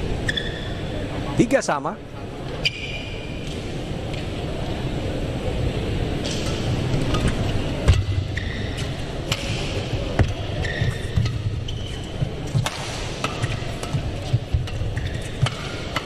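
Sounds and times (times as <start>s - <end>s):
shoes squeaking on court: 0.1s - 1.0s, 7.0s - 16.0s
racket striking shuttlecock: 9.3s - 11.5s, 12.5s - 16.0s.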